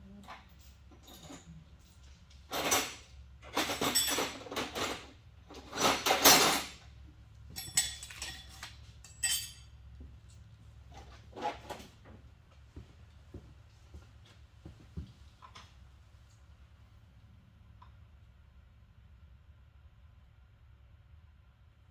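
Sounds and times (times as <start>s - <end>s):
metal tools clinking: 0.2s - 6.8s, 7.5s - 9.8s.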